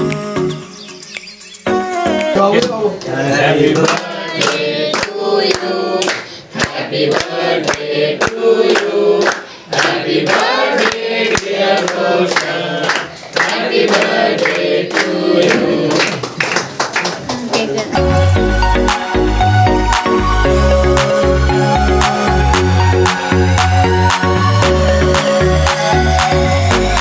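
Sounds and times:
people clapping: 0:02.6 - 0:18.0
men singing together: 0:03.1 - 0:16.2.

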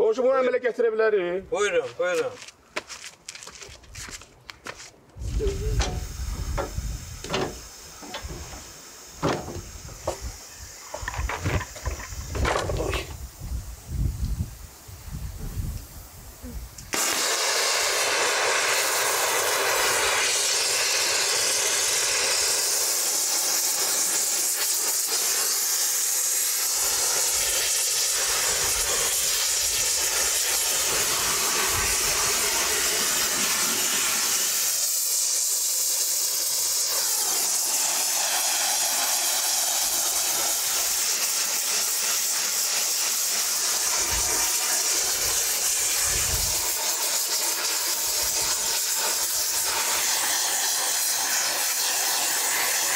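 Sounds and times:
gas torch hissing: 0:05.2 - 0:52.9.

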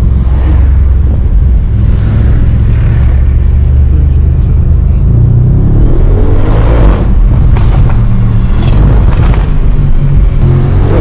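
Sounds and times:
car engine revving from inside cabin: 0:05.4 - 0:07.3, 0:10.4 - 0:11.0.

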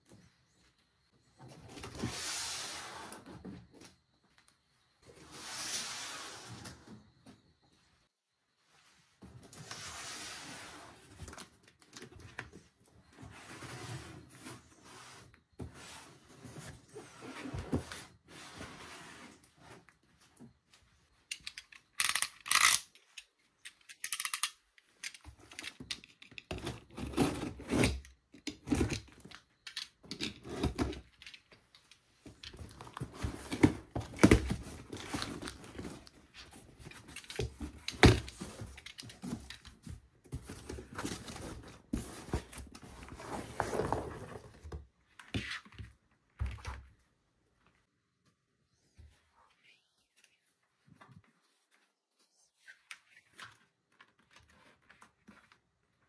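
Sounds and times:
packaging rustling and scraping: 0:32.2 - 0:44.8.

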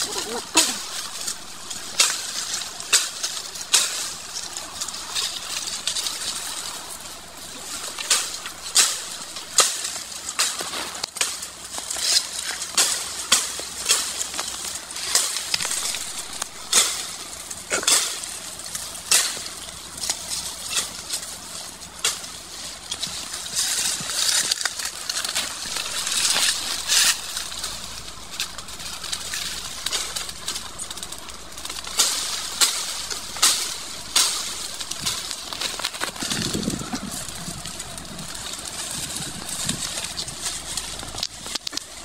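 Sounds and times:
leaves rustling: 0:00.0 - 0:42.0
twigs snapping: 0:00.0 - 0:42.0.

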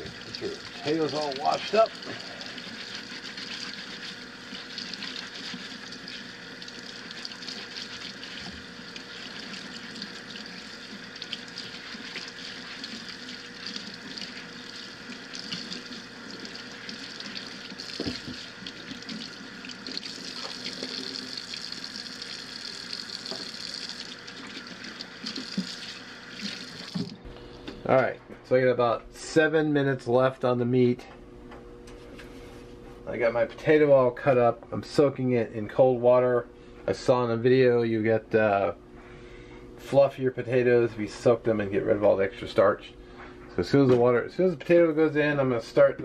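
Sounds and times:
potatoes being scrubbed: 0:00.0 - 0:21.5.

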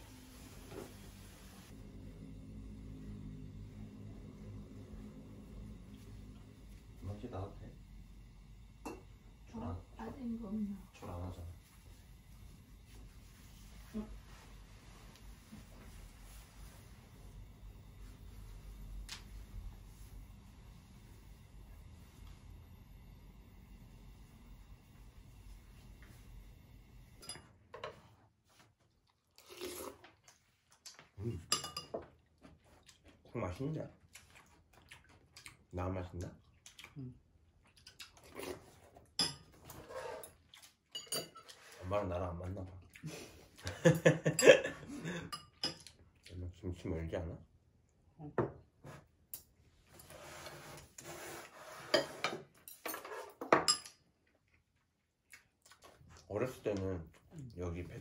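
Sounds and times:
person chewing food: 0:32.2 - 0:33.3, 0:34.0 - 0:35.7, 0:36.3 - 0:39.0, 0:54.2 - 0:56.3
rubbing scraping noise: 0:50.0 - 0:52.3.

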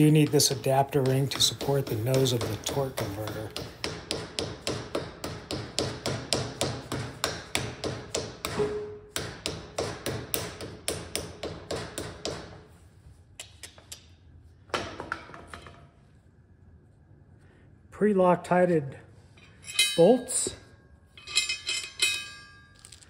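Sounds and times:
hammer tapping on metal: 0:00.0 - 0:12.5.

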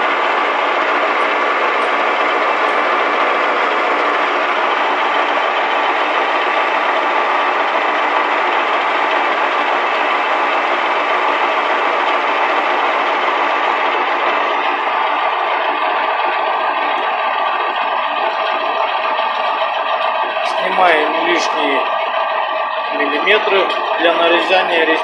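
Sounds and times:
metal lathe drone with whine: 0:00.0 - 0:25.0.

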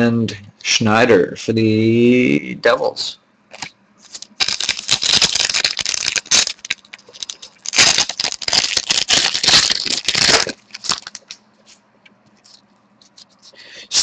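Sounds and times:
plastic wrapper crinkling and tearing: 0:03.5 - 0:11.4.

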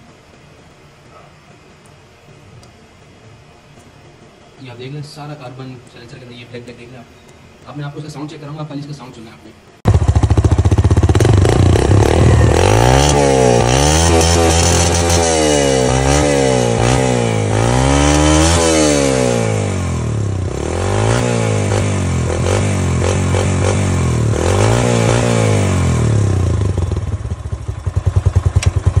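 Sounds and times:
motorcycle engine revving: 0:09.8 - 0:29.0
engine idling unevenly: 0:09.9 - 0:17.6.

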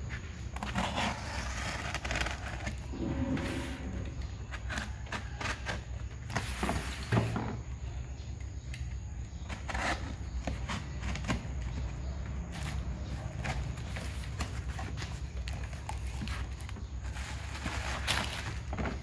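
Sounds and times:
knife slitting tape on cardboard: 0:00.5 - 0:03.6, 0:04.4 - 0:07.4, 0:08.8 - 0:11.9.

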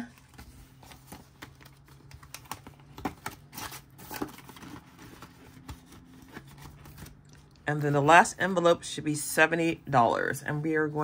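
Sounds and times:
paper banknotes rustling: 0:00.0 - 0:07.5.

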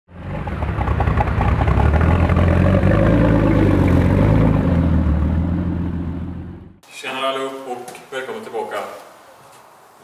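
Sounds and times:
vehicle engine running: 0:00.1 - 0:06.8.

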